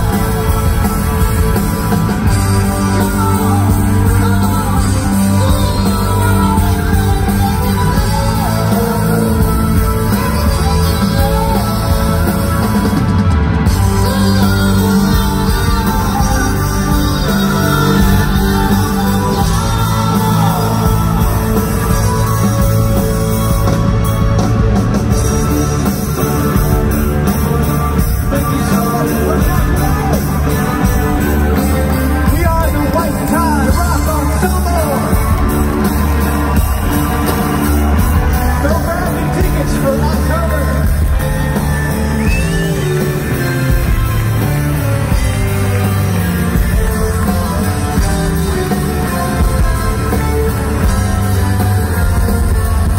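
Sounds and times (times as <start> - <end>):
person singing: 0.0 - 23.7
live rock band playing: 0.0 - 52.9.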